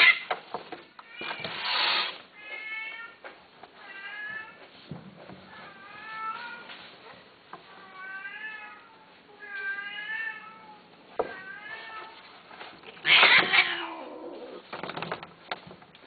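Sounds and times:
cat screeching: 0.0 - 0.2, 13.0 - 14.6
cats yowling: 13.0 - 14.6.

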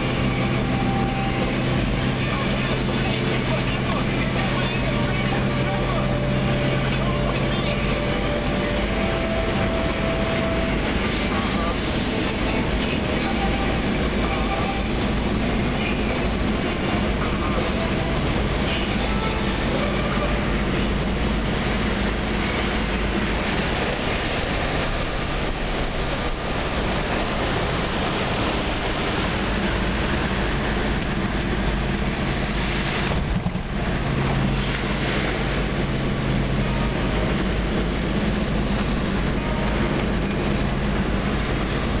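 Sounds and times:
car engine running: 0.0 - 42.0
tyre and wind noise: 22.0 - 34.5.

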